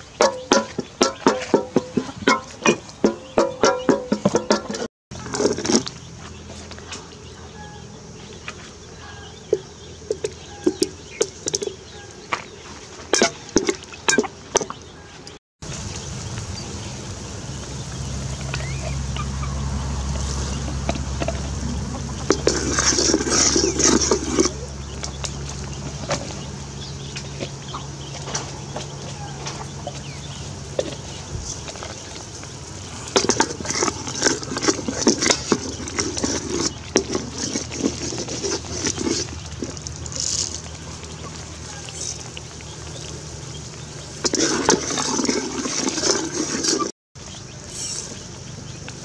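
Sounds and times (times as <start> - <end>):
ladle scraping metal pot: 0.0 - 6.0, 22.2 - 24.7, 33.1 - 40.6, 44.2 - 46.9
chickens clucking: 0.0 - 15.4, 17.5 - 49.0
low rumble: 15.6 - 34.2.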